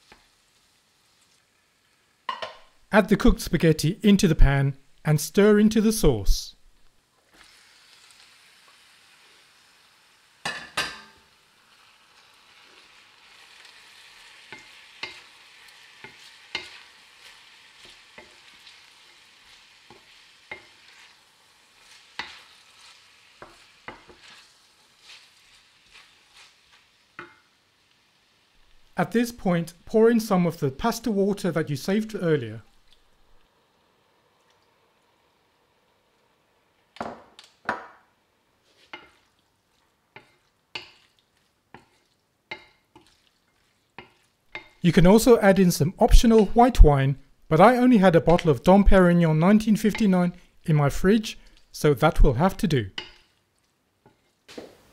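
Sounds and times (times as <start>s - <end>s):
sauce sizzling: 0.0s - 3.7s, 4.3s - 37.0s, 37.8s - 54.9s
spoon knocking against pan: 2.3s - 2.7s, 10.4s - 11.2s, 53.0s - 53.2s
wooden spoon knocking on pan: 2.3s - 2.7s, 37.0s - 38.0s
wooden spoon stirring spaghetti: 12.1s - 29.0s, 38.6s - 46.8s, 52.9s - 54.6s.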